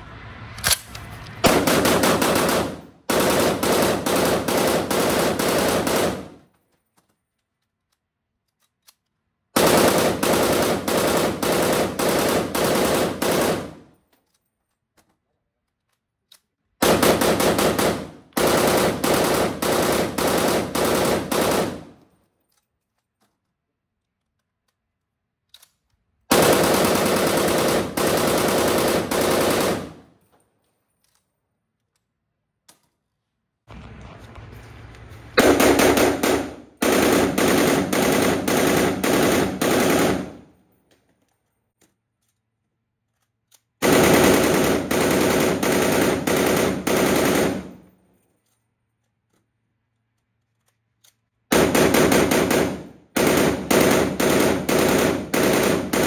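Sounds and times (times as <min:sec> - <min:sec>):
rifle firing automatic bursts: 0:01.4 - 0:06.5, 0:09.6 - 0:14.0, 0:16.8 - 0:22.0, 0:26.3 - 0:30.2, 0:33.7 - 0:40.6, 0:43.8 - 0:47.9, 0:51.5 - 0:56.0.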